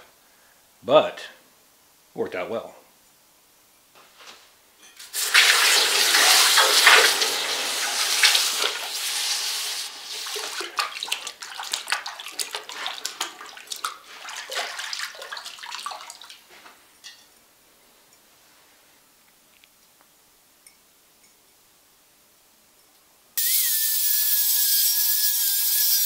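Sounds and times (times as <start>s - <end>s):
loud steam hiss: 5.0s - 10.2s
water running off pan: 5.0s - 16.5s.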